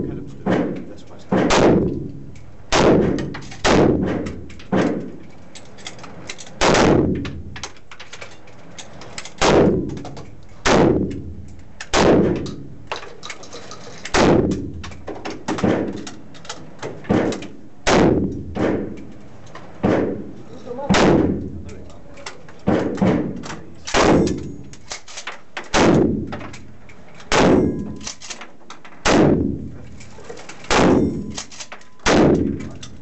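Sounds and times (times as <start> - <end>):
gunshots with ringing echo: 0.2 - 5.1, 6.6 - 7.5, 9.4 - 10.0, 10.6 - 12.8, 14.2 - 14.8, 17.1 - 19.0, 19.8 - 21.6, 22.6 - 24.7, 25.7 - 26.4, 27.3 - 28.0, 29.0 - 29.7, 30.7 - 31.4, 32.0 - 32.6.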